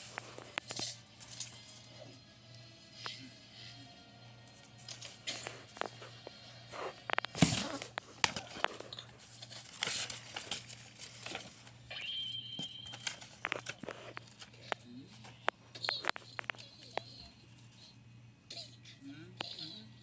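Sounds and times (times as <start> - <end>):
paper rustling and crinkling: 7.1 - 11.8, 12.8 - 14.6.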